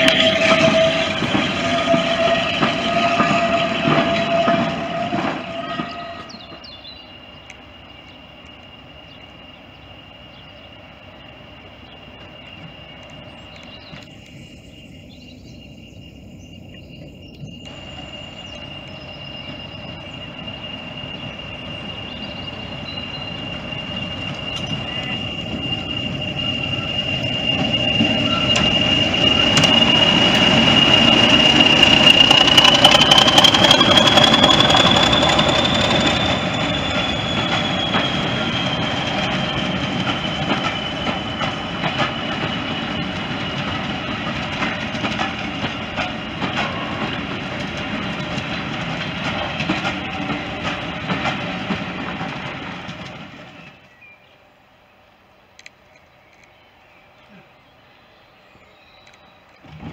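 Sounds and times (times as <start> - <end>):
turbocharger whistle: 0.0 - 6.5, 17.6 - 44.1
train wheels clicking over rail joints: 0.0 - 9.3, 16.7 - 54.0
diesel locomotive engine: 0.0 - 59.9.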